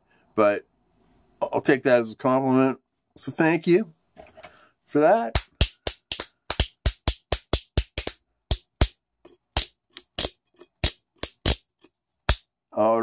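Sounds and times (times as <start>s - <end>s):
spoons clacking as percussion: 5.4s - 9.0s, 9.6s - 11.7s.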